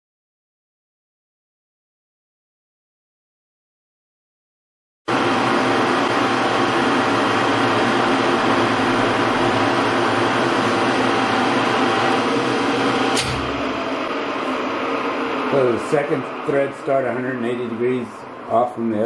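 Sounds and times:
metal lathe humming and whining: 0:05.1 - 0:18.7
sharp click: 0:13.1 - 0:13.6.

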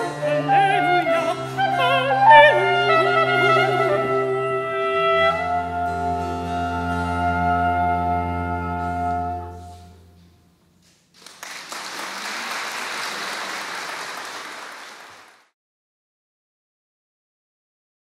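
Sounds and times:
soprano and baroque ensemble chord: 0:00.0 - 0:10.0
audience applauding: 0:11.1 - 0:15.6.

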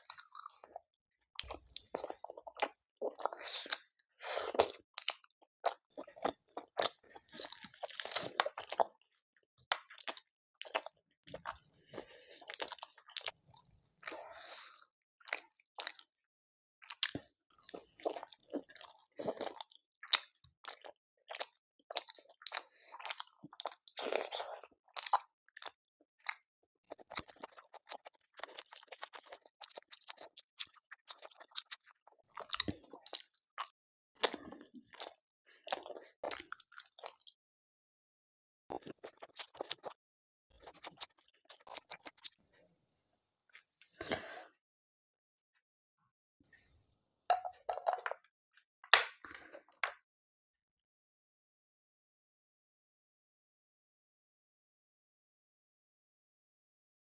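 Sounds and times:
person chewing food: 0:00.0 - 0:00.8, 0:01.4 - 0:16.2, 0:16.8 - 0:37.4, 0:38.7 - 0:42.4.

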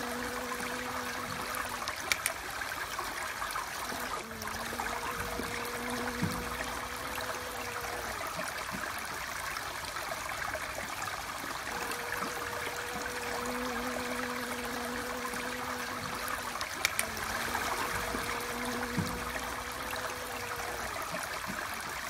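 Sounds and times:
honeybee buzzing: 0:00.0 - 0:02.3, 0:04.0 - 0:08.6, 0:11.6 - 0:21.3
short clicks: 0:01.9 - 0:02.4, 0:16.8 - 0:17.2.

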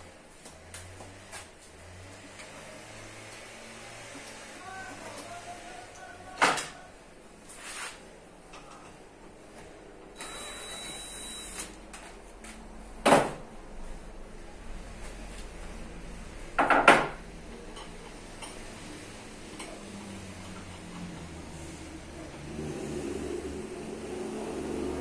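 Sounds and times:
cordless drill whine: 0:10.2 - 0:11.7
workshop handling knocks: 0:13.0 - 0:13.5, 0:16.6 - 0:17.2.

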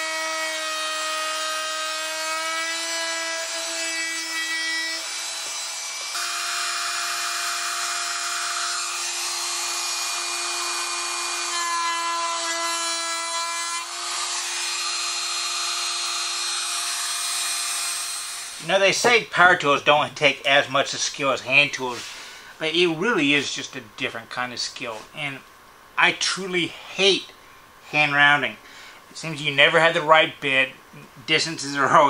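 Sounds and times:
trim router whining: 0:00.0 - 0:18.7
router bit cutting board: 0:00.0 - 0:18.8.

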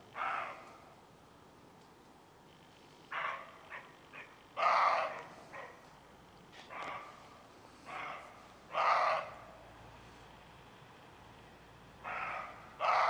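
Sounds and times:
deer barking: 0:00.2 - 0:00.7, 0:03.1 - 0:05.8, 0:06.6 - 0:07.2, 0:07.8 - 0:09.5, 0:12.0 - 0:13.0.

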